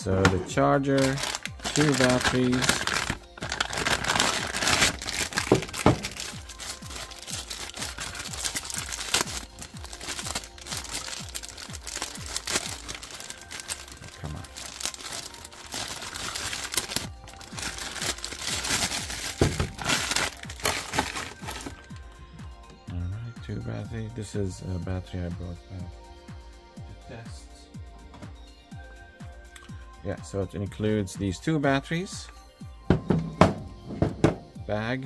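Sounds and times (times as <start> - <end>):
background music: 0.0 - 35.0
packaging crinkling: 1.0 - 22.0.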